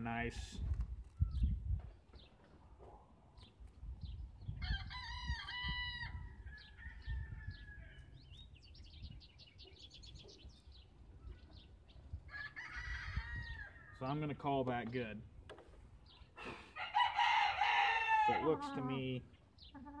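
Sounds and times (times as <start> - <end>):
birds chirping: 1.0 - 20.0
rooster crowing: 12.3 - 14.0, 16.8 - 18.8.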